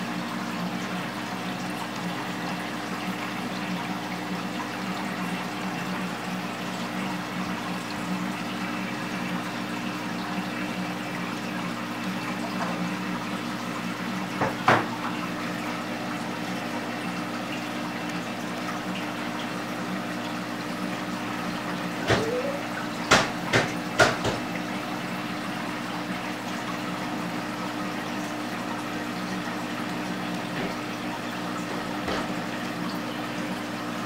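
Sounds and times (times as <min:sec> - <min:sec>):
aquarium pump humming: 0:00.0 - 0:34.0
moving water: 0:00.0 - 0:34.0
sharp knocks: 0:22.1 - 0:24.4.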